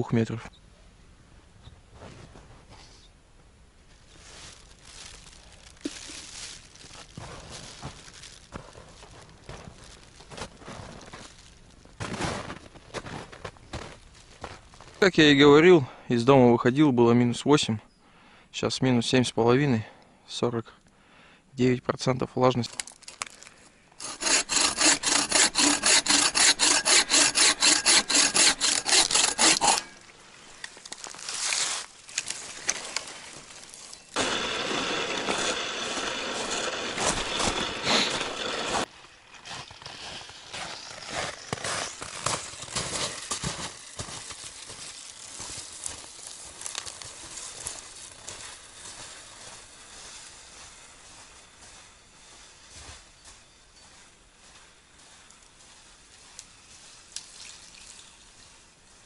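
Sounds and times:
scattered crackles: 4.2 - 12.0
bow saw cutting branch: 24.0 - 38.9.

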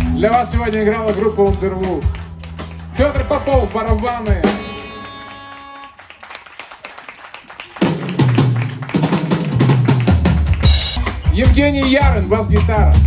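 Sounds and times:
rock drum kit playing: 0.0 - 5.9, 7.8 - 13.0
held chord: 3.1 - 6.0.

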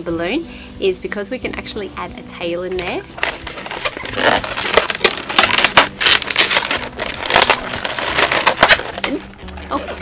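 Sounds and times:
balloons squeaking and rubbing: 2.8 - 10.0.

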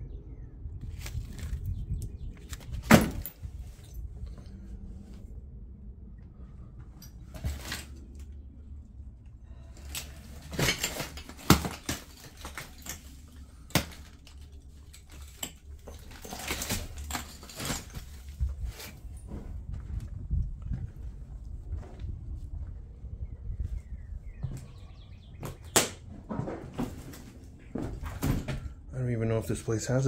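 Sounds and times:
debris clinking and rustling: 2.4 - 4.4, 7.0 - 8.4, 9.7 - 19.6.

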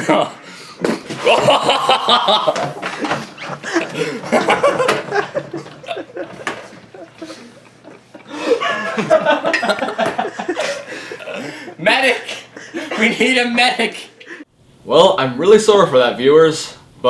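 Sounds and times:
people laughing: 1.0 - 14.5.

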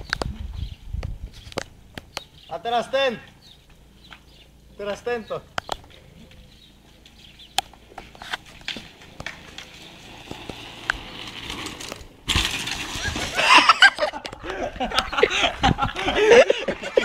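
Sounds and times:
bicycle clicking and rattling: 7.0 - 17.0.

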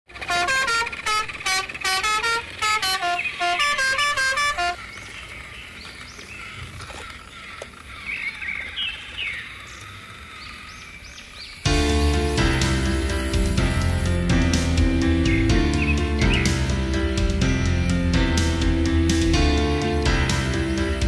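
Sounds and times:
horn-like melody of short notes: 0.1 - 4.8.

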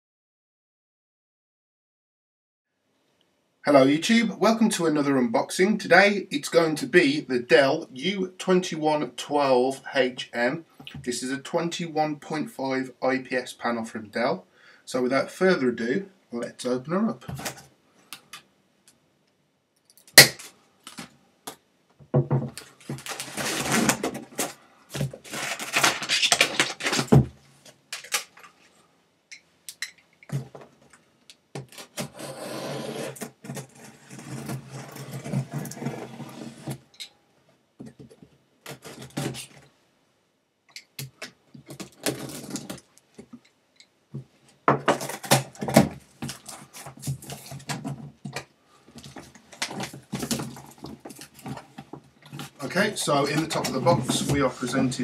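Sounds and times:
cardboard scraping and rustling: 22.8 - 27.3, 31.6 - 36.8, 44.9 - 48.2, 49.0 - 55.0
blade slitting packing tape: 25.3 - 27.1.

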